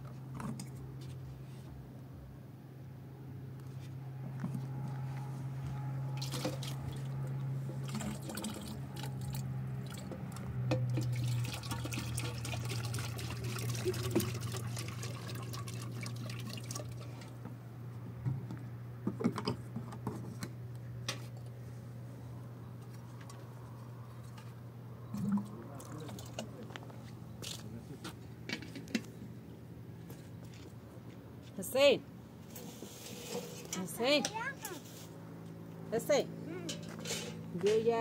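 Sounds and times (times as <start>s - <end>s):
steady low hum: 0.0s - 38.0s
water pouring and splashing: 6.2s - 7.1s, 7.8s - 17.4s.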